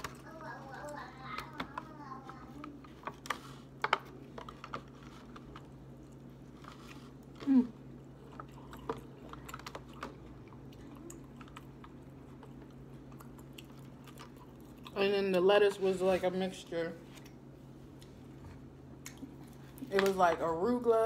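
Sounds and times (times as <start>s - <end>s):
chewing salad: 0.0s - 15.4s, 19.0s - 20.2s.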